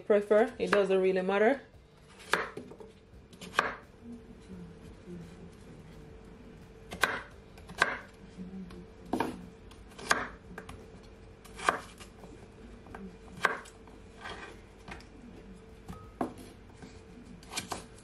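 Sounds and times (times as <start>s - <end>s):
knife chopping on wooden board: 2.1s - 3.8s, 6.9s - 8.2s, 9.1s - 10.8s, 11.4s - 12.1s, 13.4s - 14.5s, 17.4s - 17.9s.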